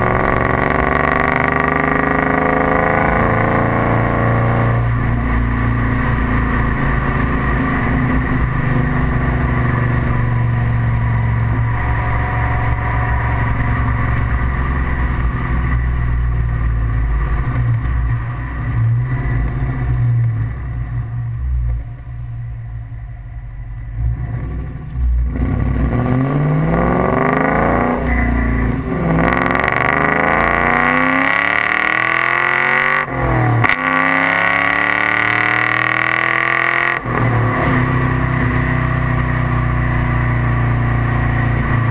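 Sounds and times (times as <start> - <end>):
car exhaust accelerating: 0.0 - 41.9.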